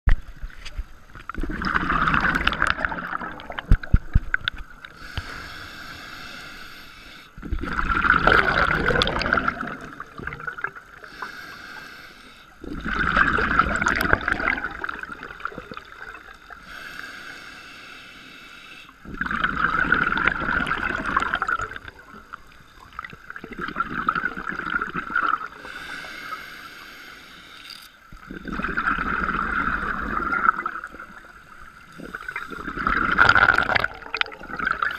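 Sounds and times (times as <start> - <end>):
bubbly exhaled air underwater: 1.3 - 5.4, 7.4 - 11.2, 12.6 - 16.6, 19.0 - 26.0, 28.1 - 34.9
regulator inhalation hiss: 4.9 - 7.4, 11.0 - 12.6, 16.5 - 19.0, 25.6 - 28.5.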